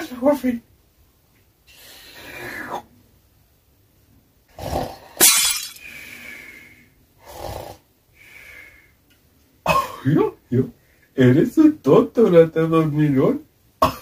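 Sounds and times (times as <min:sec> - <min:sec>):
drinking glass shattering: 0:05.2 - 0:05.8.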